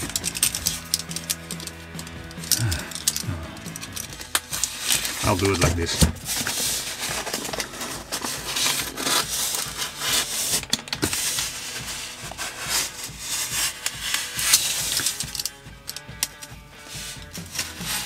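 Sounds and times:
knife cutting packing tape: 0:02.4 - 0:18.0
scraping and rubbing on foam: 0:04.7 - 0:15.3, 0:16.8 - 0:18.0.

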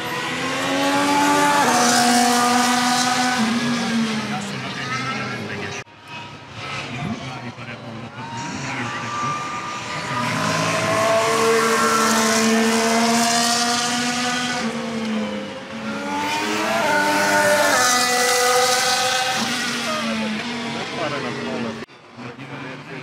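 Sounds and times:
race car engines screaming past: 0:07.9 - 0:22.4.

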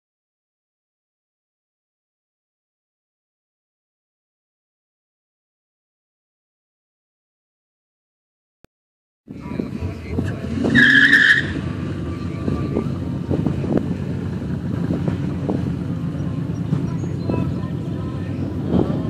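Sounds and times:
car exhaust rumble: 0:09.3 - 0:19.0
high-pitched squeal: 0:10.2 - 0:13.0.

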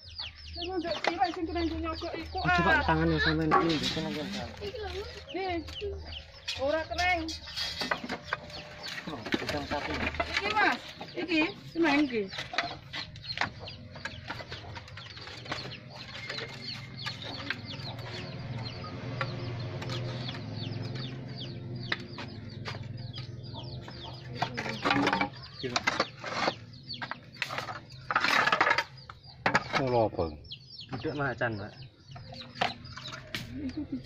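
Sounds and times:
roof tiles clacking and scraping: 0:02.5 - 0:21.2, 0:23.8 - 0:30.1.

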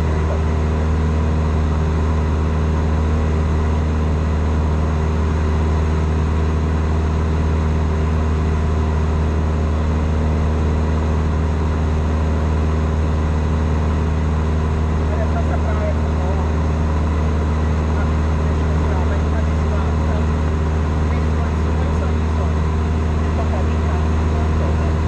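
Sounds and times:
plane engine and propeller droning: 0:00.0 - 0:25.0.

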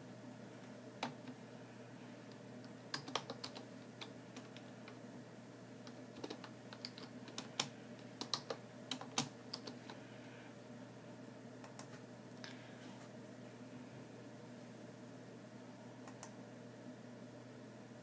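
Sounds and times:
steady low hum: 0:00.0 - 0:18.0
typing on computer keyboard: 0:02.9 - 0:04.7, 0:05.8 - 0:09.9.

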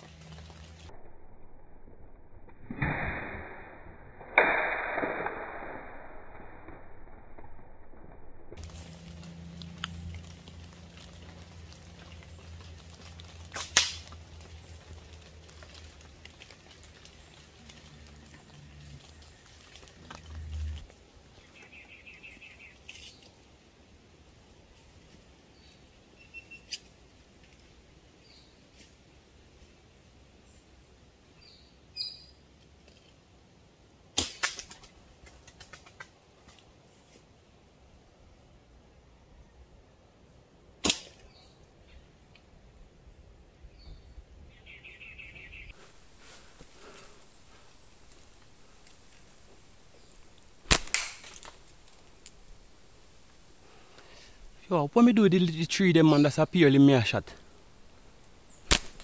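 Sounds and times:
slingshot snap: 0:02.5 - 0:06.8, 0:13.5 - 0:14.2, 0:34.2 - 0:36.0, 0:40.8 - 0:41.4, 0:50.6 - 0:52.4, 0:58.6 - 0:59.0
quick clicks and flutters: 0:34.2 - 0:36.7.

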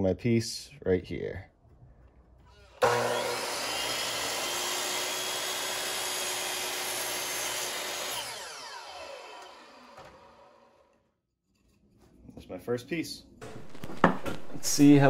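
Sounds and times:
miter saw cutting wood: 0:02.5 - 0:11.0
saw blade spinning down: 0:02.5 - 0:11.0.

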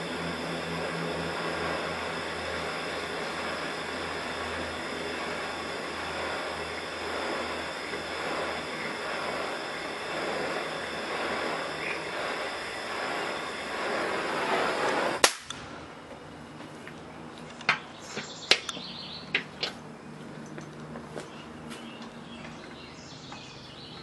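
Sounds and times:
gas torch hissing: 0:00.0 - 0:20.2.

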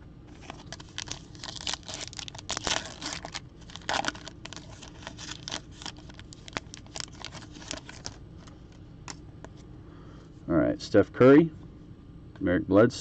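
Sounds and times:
foil wrapper tearing and crinkling: 0:00.3 - 0:08.5.

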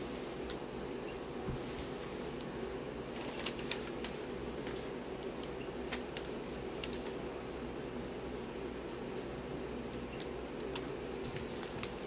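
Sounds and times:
low background hum: 0:00.0 - 0:12.0
plastic film rustling and crackling: 0:01.5 - 0:07.4, 0:09.0 - 0:12.0.

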